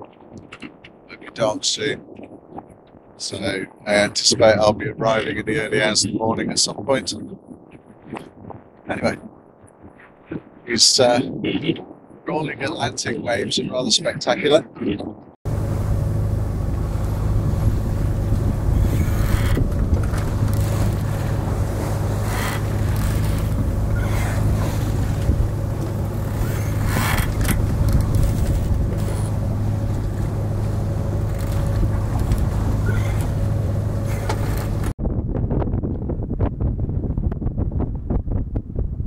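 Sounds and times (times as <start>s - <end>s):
wind noise: 0.0s - 39.0s
boat engine humming: 15.4s - 35.0s
water wash: 15.5s - 35.0s.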